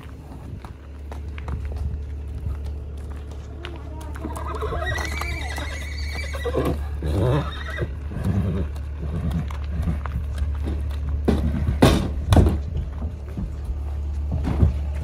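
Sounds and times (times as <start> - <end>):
hooves stepping on gravel: 0.0 - 15.0
horse whinnying: 4.0 - 9.1.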